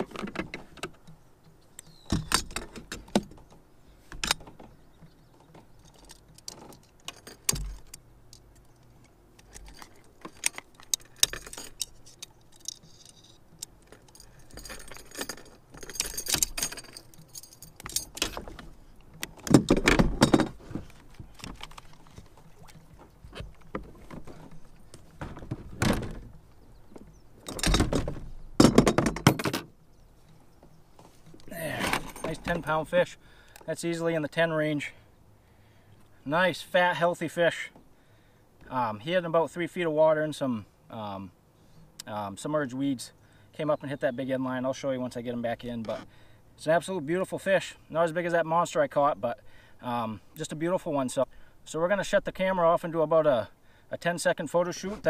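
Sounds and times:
metallic jangling of pliers and lure: 9.5s - 18.3s
knocks and thumps: 19.4s - 21.6s, 25.2s - 26.3s, 27.0s - 29.7s.

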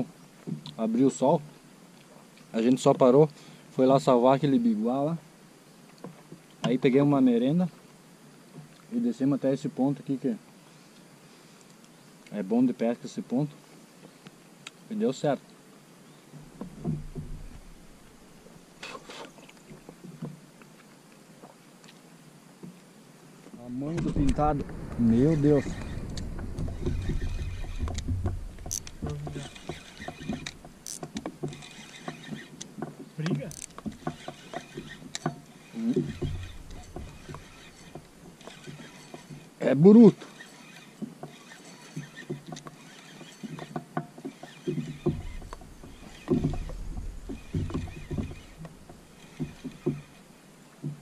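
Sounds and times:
low thumps: 16.4s - 18.4s, 23.8s - 32.2s, 33.4s - 38.6s, 44.8s - 50.2s
low rumble: 23.8s - 29.7s
fishing reel clicking: 25.6s - 39.4s, 40.1s - 50.2s.

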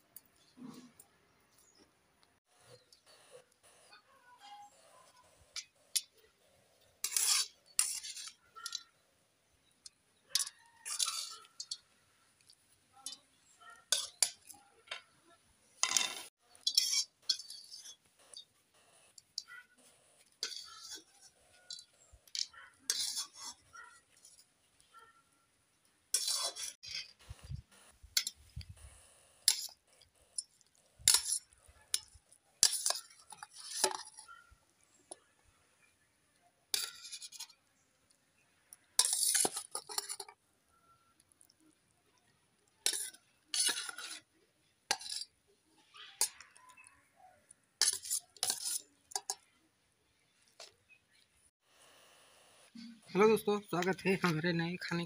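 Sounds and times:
metal spoon scraping wok: 6.8s - 9.0s, 9.8s - 15.1s, 15.8s - 19.5s, 20.1s - 24.5s, 26.1s - 27.6s, 29.4s - 34.3s, 36.7s - 37.6s, 39.0s - 40.4s, 42.8s - 44.3s, 44.9s - 46.9s, 47.8s - 49.4s.

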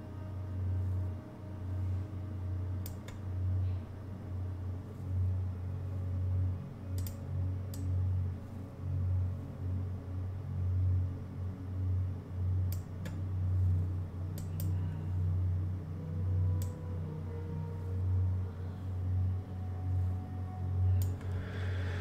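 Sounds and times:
low steady hum: 0.0s - 22.0s
computer mouse clicks: 7.0s - 7.9s, 14.3s - 14.8s.

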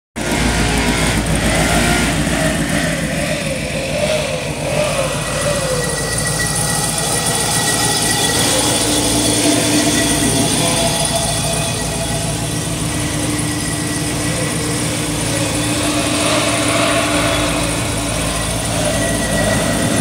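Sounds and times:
pickup engine idling: 0.2s - 20.0s
thin high whine: 0.2s - 20.0s.

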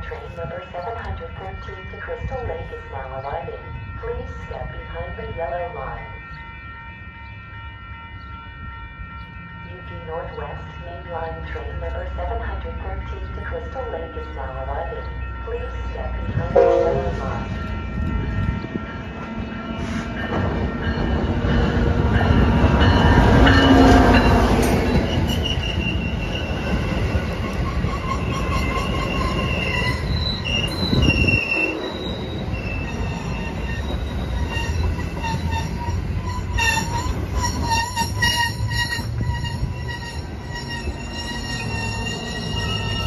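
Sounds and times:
train pulling into station: 0.0s - 43.0s
wheels and brakes squealing: 22.2s - 43.0s.

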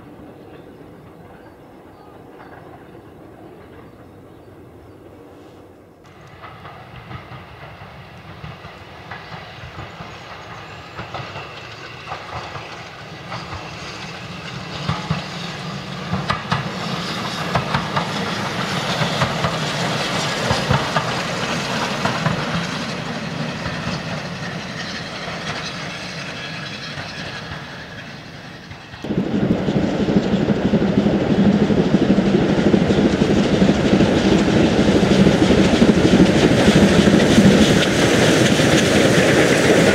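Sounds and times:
steam railcar running past: 0.0s - 39.9s
steady rushing noise: 29.0s - 39.9s.

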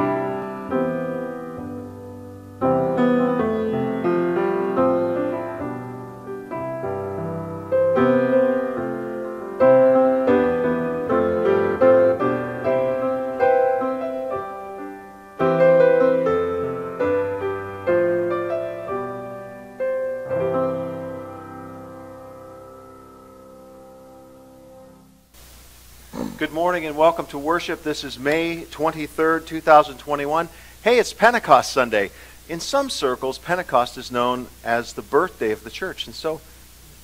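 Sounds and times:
slow gentle piano piece: 0.0s - 25.3s.

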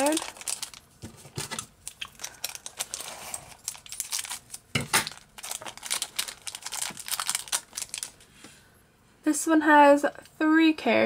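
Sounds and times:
plastic wrapper crinkling and tearing: 0.0s - 8.2s.

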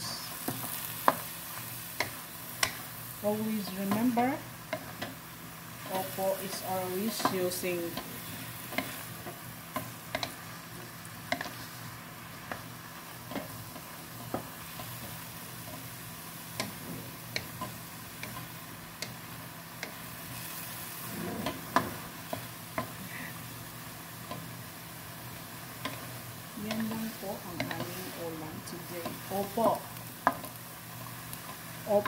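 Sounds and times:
vegetables sizzling: 0.0s - 32.0s
spatula knocking and scraping pan: 5.8s - 10.5s, 11.2s - 11.8s, 21.0s - 23.0s, 25.8s - 30.6s.

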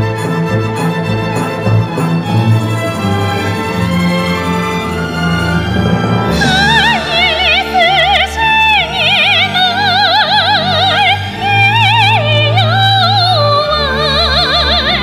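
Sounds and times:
orchestra sustaining low chords: 0.0s - 15.0s
woman singing with vibrato: 6.3s - 15.0s.

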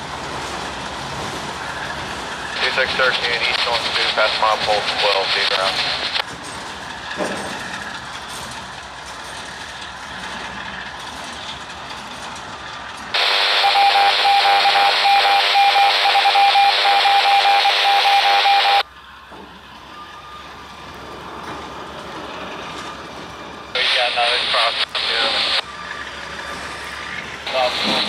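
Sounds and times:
freight cars rolling on rails: 0.0s - 28.0s
scanner radio hiss and beeping: 2.6s - 6.2s, 13.2s - 18.8s, 23.8s - 26.0s, 27.5s - 28.0s.

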